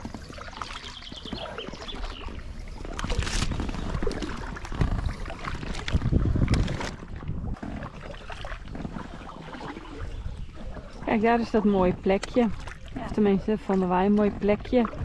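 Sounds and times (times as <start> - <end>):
paddles splashing in water: 0.0 - 15.0.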